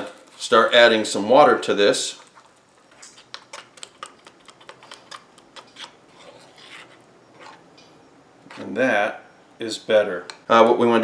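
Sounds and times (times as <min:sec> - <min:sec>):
batter stirring swish: 0:02.0 - 0:07.7.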